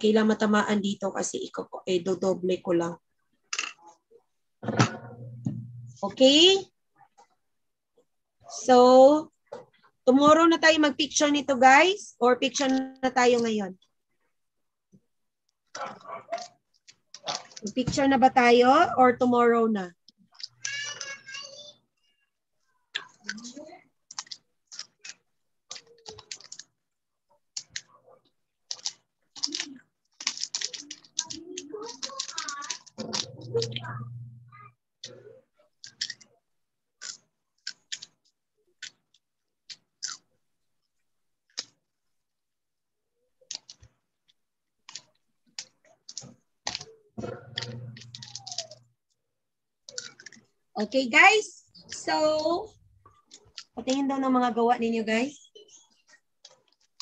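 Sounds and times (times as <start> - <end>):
keyboard typing clatter: 28.7 - 33.9.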